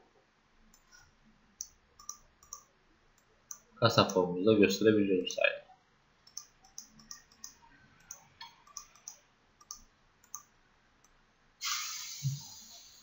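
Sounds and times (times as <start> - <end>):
faint computer mouse clicks: 1.6 - 4.2, 6.2 - 11.2
short hiss: 11.6 - 13.0.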